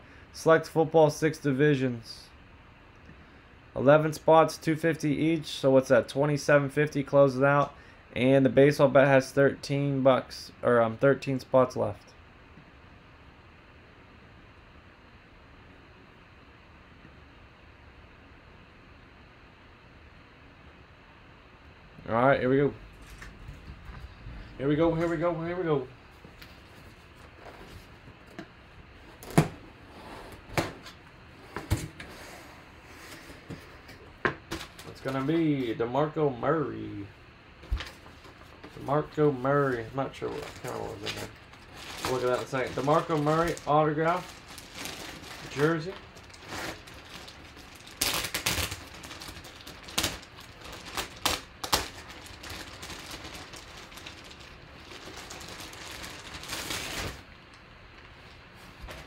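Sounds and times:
plastic bag crinkling: 0:39.7 - 0:58.4.

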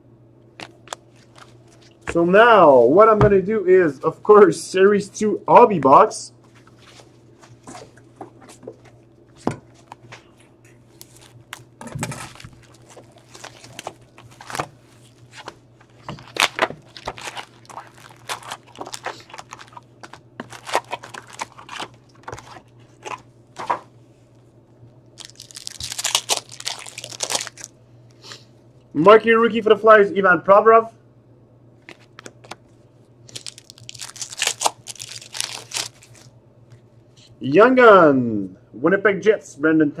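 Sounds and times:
wrapper torn open with crinkly rip: 0:11.0 - 0:15.3, 0:16.2 - 0:23.2, 0:25.2 - 0:27.7, 0:33.2 - 0:36.3
taps clicks and rustles: 0:15.4 - 0:23.9.

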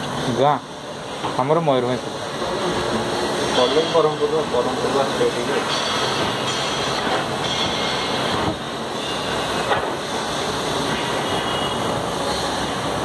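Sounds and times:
machinery rumble and hiss: 0:00.0 - 0:13.0.

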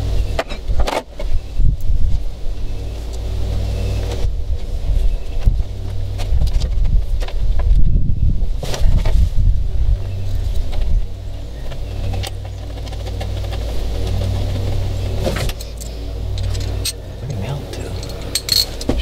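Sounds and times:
low machine hum: 0:00.0 - 0:19.0
cables clicking and rustling: 0:11.6 - 0:19.0.

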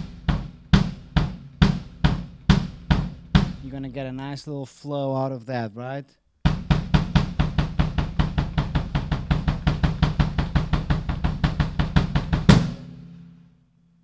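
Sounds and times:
bass drum kick-pedal strokes: 0:00.0 - 0:04.0, 0:06.4 - 0:13.5.

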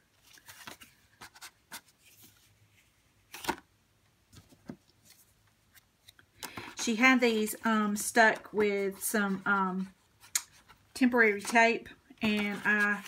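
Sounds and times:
paper rustling: 0:00.2 - 0:03.6, 0:04.3 - 0:06.7, 0:10.5 - 0:13.0.

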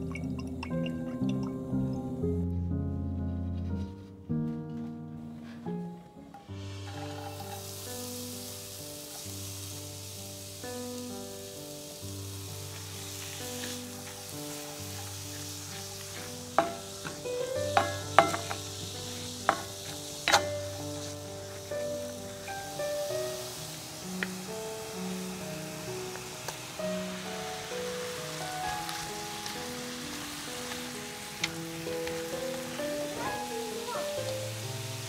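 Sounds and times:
onion sizzling in oil: 0:00.0 - 0:02.7, 0:05.5 - 0:35.0
wooden spatula scraping a pan: 0:05.4 - 0:08.1, 0:12.7 - 0:22.8.

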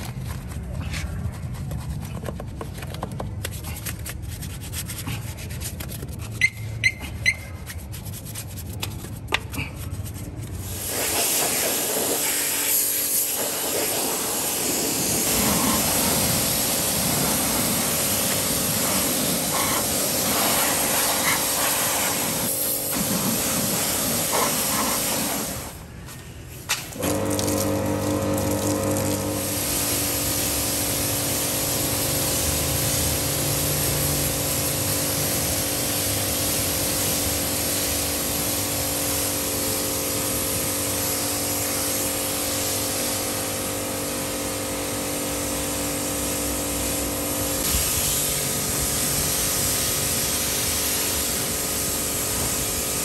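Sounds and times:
brush scrubbing foam: 0:00.0 - 0:06.5, 0:07.1 - 0:25.7
water spray hissing: 0:10.6 - 0:25.8, 0:27.0 - 0:39.4.

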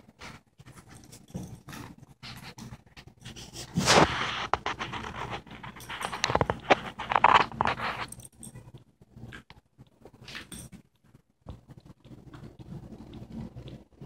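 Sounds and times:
dog claws scrabbling on wooden floor: 0:03.8 - 0:08.5.

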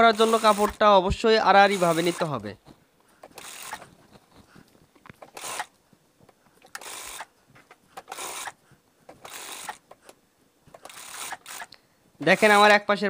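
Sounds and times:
sewing machine stitching: 0:00.0 - 0:00.9, 0:01.6 - 0:02.4, 0:03.3 - 0:03.9, 0:06.7 - 0:07.3, 0:08.0 - 0:08.6, 0:09.2 - 0:09.9, 0:10.8 - 0:12.8.

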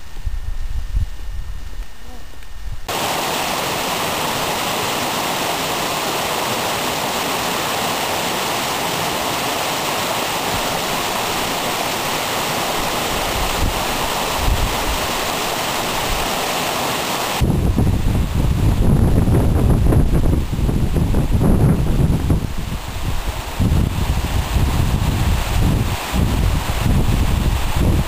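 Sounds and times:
water splashing over rocks: 0:02.9 - 0:17.4.

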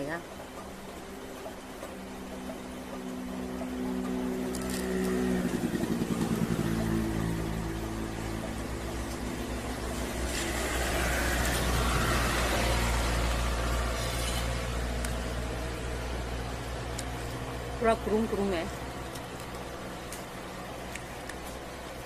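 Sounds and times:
vehicle engine rumbling: 0:00.3 - 0:22.0.

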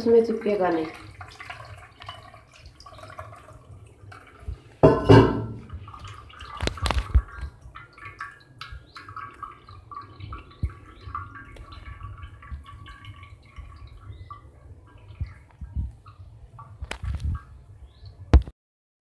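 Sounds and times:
water trickling through strainer: 0:00.0 - 0:18.4
water dripping: 0:00.0 - 0:18.5
metal strainer clattering: 0:04.8 - 0:05.7
metal knocks on pot: 0:04.8 - 0:05.8.

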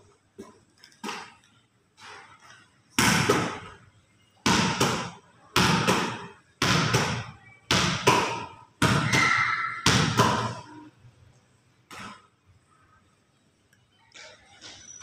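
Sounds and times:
ball smacking concrete wall: 0:02.9 - 0:03.8.

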